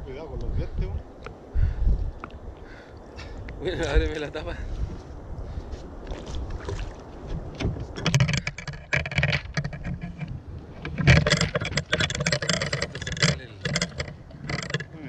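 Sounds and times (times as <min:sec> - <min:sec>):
fish scraping and knocking in bucket: 0:06.1 - 0:14.9.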